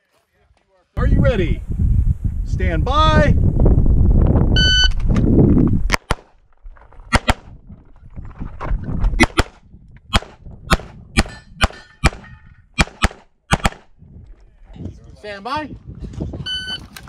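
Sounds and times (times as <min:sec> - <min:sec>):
pistol shots: 0:09.2 - 0:13.9.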